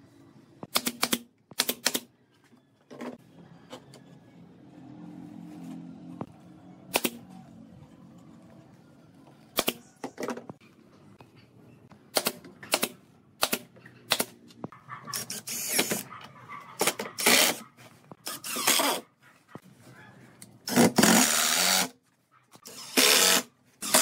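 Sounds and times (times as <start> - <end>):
pneumatic nailer firing nails: 0.7 - 2.1, 12.1 - 14.4, 15.2 - 16.0, 18.2 - 19.0, 20.6 - 21.9, 22.6 - 24.0
impact driver driving screws: 20.7 - 21.9, 22.6 - 24.0.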